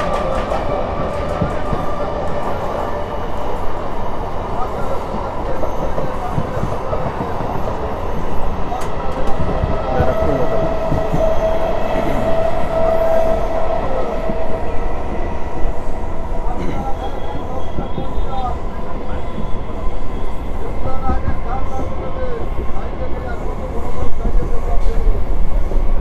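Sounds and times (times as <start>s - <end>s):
train wheels rumbling on track: 0.0s - 26.0s.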